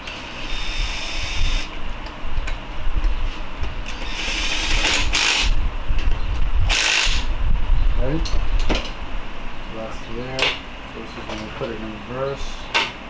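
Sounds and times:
power ratchet whirring: 0.0s - 1.7s, 3.8s - 5.6s, 6.7s - 7.3s.

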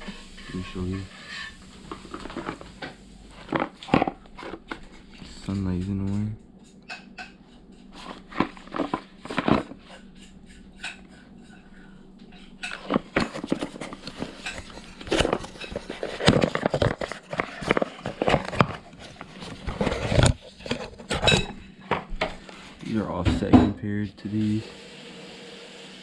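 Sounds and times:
small hard parts clattering: 8.0s - 9.8s, 12.6s - 21.6s.

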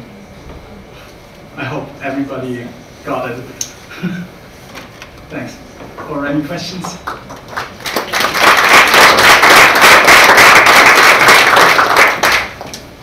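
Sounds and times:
audience applauding: 6.8s - 12.8s.

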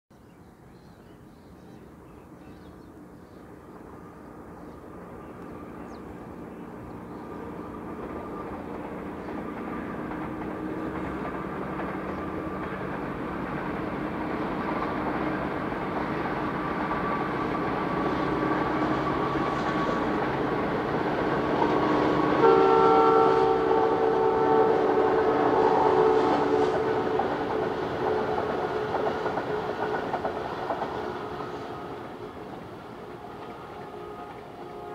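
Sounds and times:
train wheels rumbling on track: 1.2s - 34.9s
locomotive horn chord: 21.9s - 28.9s, 33.2s - 34.9s.

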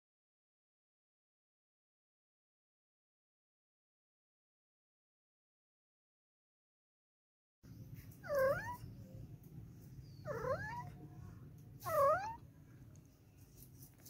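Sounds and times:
cat mewing: 8.2s - 8.9s, 10.2s - 11.0s, 11.8s - 12.4s.

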